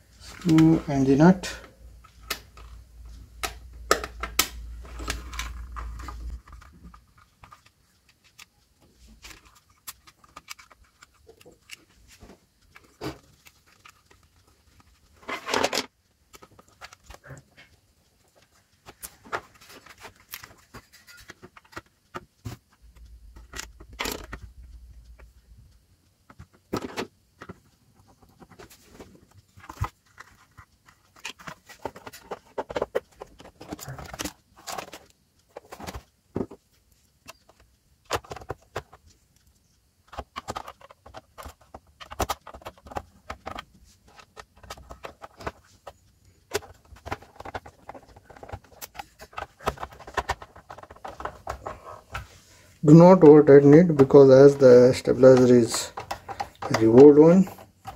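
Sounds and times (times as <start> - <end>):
plastic case clicks and rattles: 3.4 - 7.7, 9.2 - 11.8, 23.4 - 24.5, 26.3 - 36.6, 37.5 - 39.0, 40.1 - 52.0, 53.6 - 57.9.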